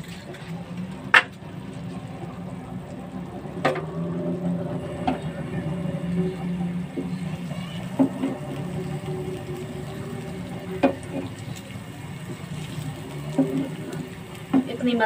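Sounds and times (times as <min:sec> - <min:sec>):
eggs sizzling in oil: 0:00.0 - 0:15.0
wooden spatula knocking pan: 0:14.5 - 0:14.9.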